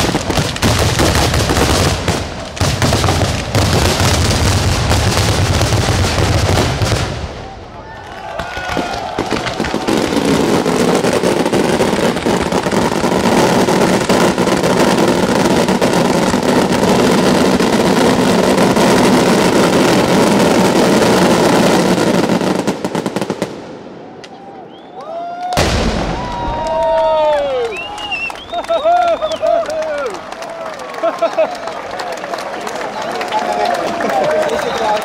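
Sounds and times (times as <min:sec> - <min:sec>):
loud bang: 0:25.6 - 0:26.9.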